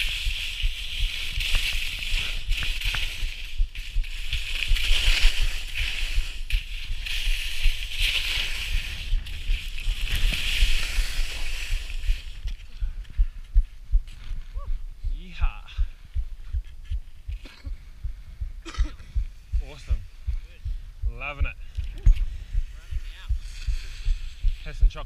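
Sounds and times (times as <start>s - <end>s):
skis scraping across snow: 0.0s - 12.7s.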